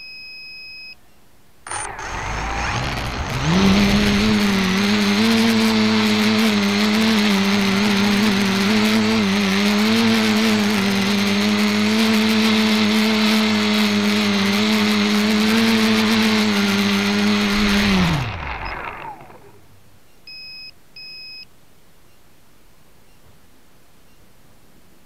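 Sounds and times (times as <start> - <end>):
drone propellers humming: 1.7 - 19.8
short electronic beeps: 20.3 - 21.5.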